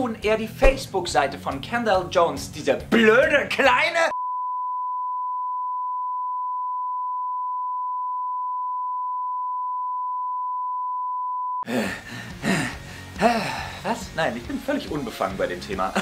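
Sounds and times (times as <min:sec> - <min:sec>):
steady test tone beep: 0:04.1 - 0:11.6.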